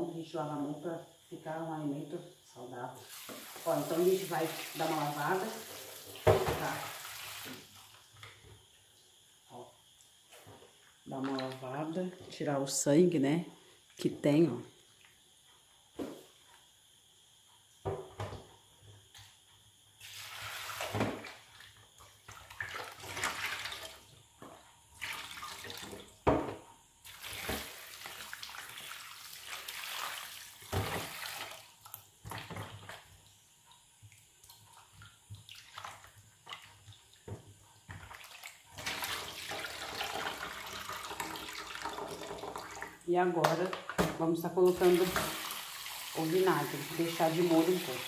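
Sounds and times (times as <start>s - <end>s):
water sloshing and splashing in bowl: 11.1s - 12.1s, 20.0s - 26.2s, 27.0s - 44.0s, 44.7s - 48.0s
water pouring into steel sink: 38.0s - 43.0s, 44.7s - 48.0s.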